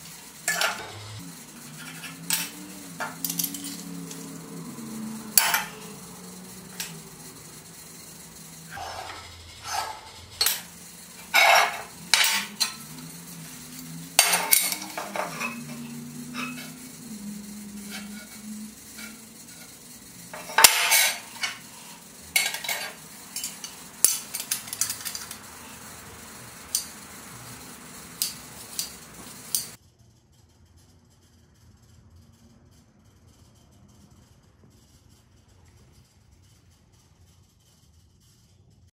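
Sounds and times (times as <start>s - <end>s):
steel tools clinking on metal: 0.1s - 7.3s, 8.6s - 19.7s, 20.3s - 29.8s
scribe scraping on steel: 8.6s - 29.8s.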